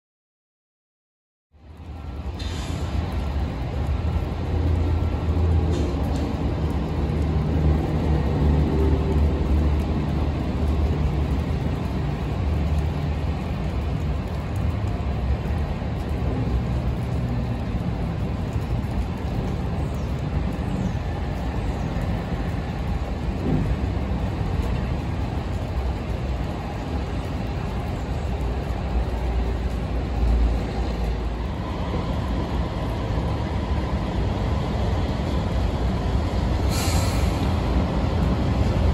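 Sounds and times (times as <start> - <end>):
train low rumble: 1.5 - 38.9
diesel engine hum: 1.6 - 38.9.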